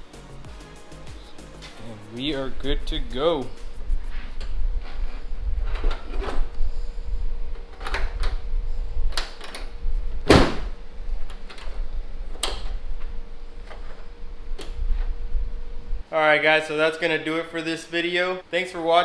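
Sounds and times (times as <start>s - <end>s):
low rumble: 2.2s - 16.1s.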